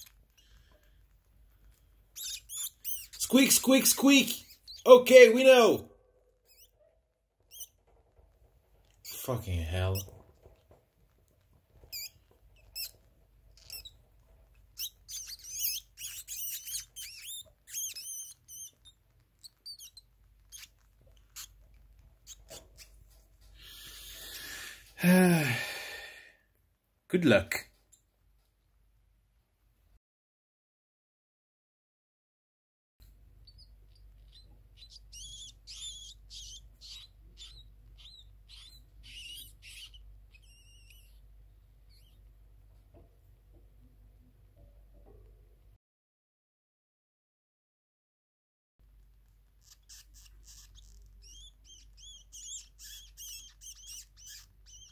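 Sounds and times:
rats squeaking: 0:00.0 - 0:24.5, 0:33.4 - 0:42.3, 0:49.2 - 0:54.9.

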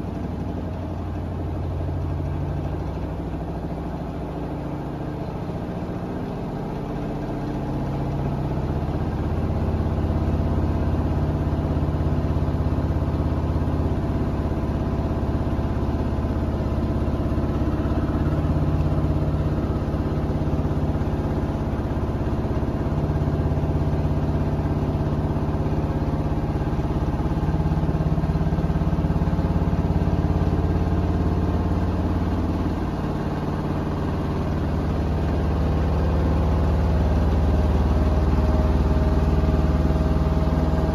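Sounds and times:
washing machine motor hum: 0:08.3 - 0:40.9.

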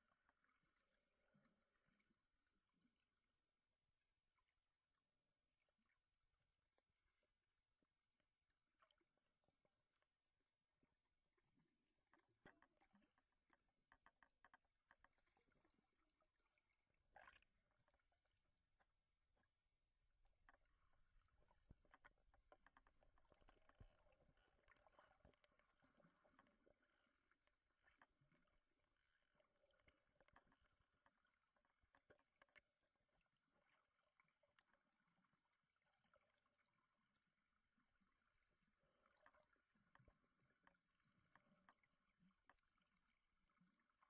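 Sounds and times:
faint underwater clicks and crackling: 0:00.0 - 0:44.0.

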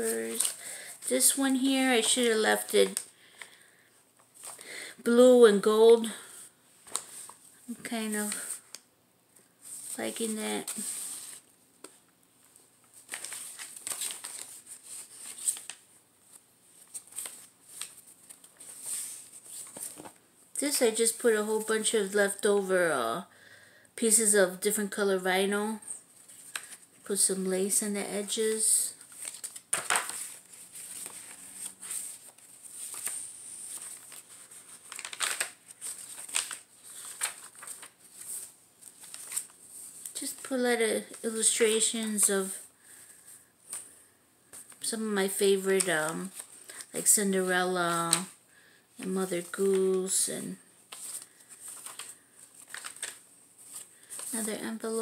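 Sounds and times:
paper pages rustling: 0:00.0 - 0:03.5, 0:04.2 - 0:04.6, 0:06.8 - 0:07.5, 0:09.6 - 0:20.2, 0:26.1 - 0:27.1, 0:28.1 - 0:43.9, 0:50.8 - 0:54.6
pages flicking and snapping: 0:12.9 - 0:15.8, 0:16.8 - 0:20.2, 0:26.3 - 0:26.8, 0:29.0 - 0:40.2, 0:50.9 - 0:54.4.

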